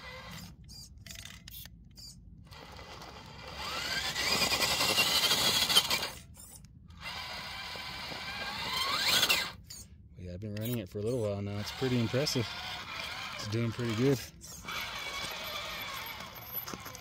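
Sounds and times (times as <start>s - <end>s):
electric motor whining under load: 2.6s - 9.6s, 11.6s - 17.0s.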